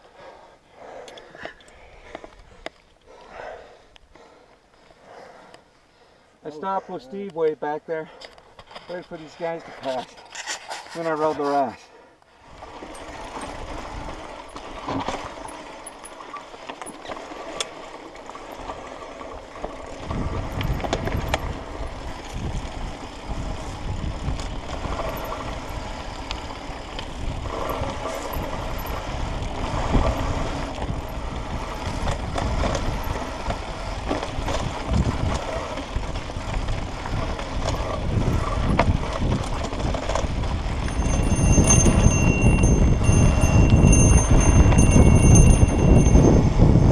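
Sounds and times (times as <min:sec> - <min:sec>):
wind rumbling on microphone: 0:12.4 - 0:15.5, 0:19.4 - 0:46.9
tyre noise on dirt: 0:12.4 - 0:46.9.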